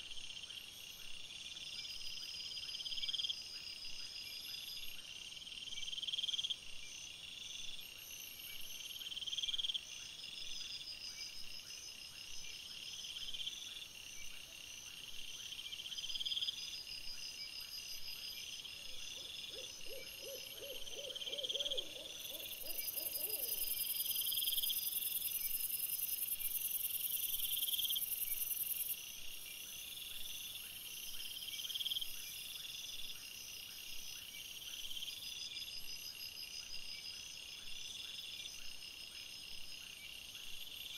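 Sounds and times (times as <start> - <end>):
insects trilling: 18.5 - 29.1.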